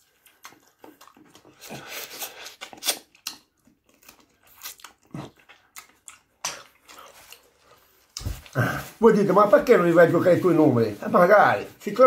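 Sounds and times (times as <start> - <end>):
man chewing and biting food: 0.0 - 8.6.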